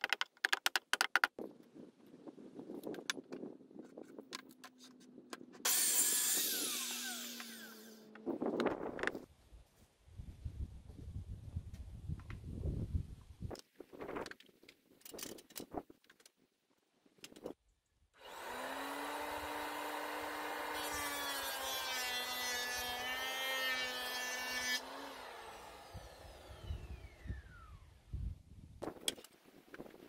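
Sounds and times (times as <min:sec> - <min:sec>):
electric mitre saw cutting wood: 0:05.6 - 0:08.3, 0:18.2 - 0:27.9.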